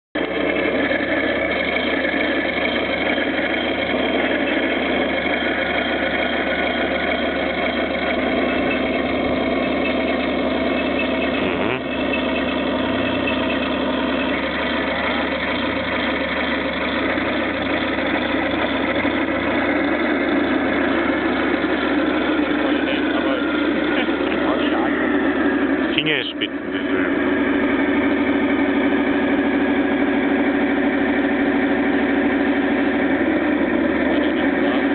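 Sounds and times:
model tank motor drone: 0.2s - 34.9s.

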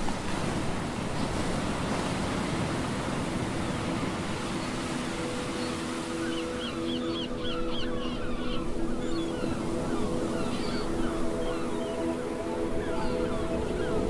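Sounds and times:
ocean surf washing: 0.0s - 14.0s
held musical notes: 4.4s - 14.0s.

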